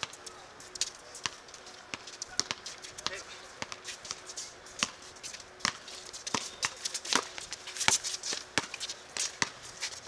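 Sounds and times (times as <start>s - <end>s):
footsteps on court: 0.0s - 10.0s
basketball bouncing: 1.2s - 4.2s, 5.6s - 8.0s, 9.4s - 9.6s.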